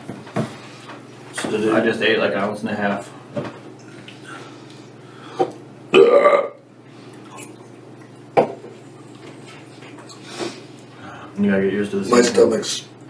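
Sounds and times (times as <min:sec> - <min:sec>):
man belching loudly: 0:05.9 - 0:06.6.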